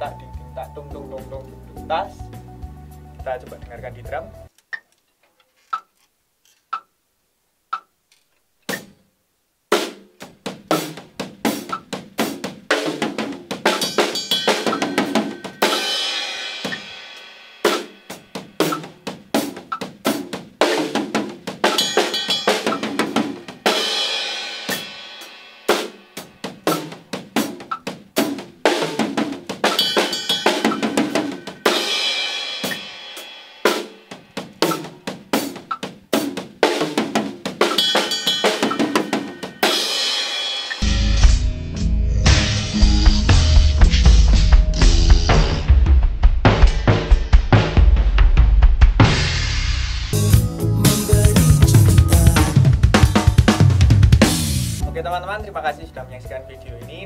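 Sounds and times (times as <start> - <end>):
drum kit groove: 0.0 - 4.6, 9.7 - 57.0
ringing cymbal: 21.7 - 25.7.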